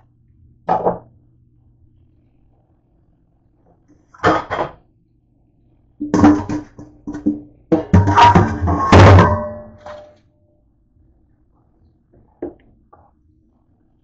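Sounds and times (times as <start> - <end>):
metal pot clanking against sink: 6.0 - 10.0.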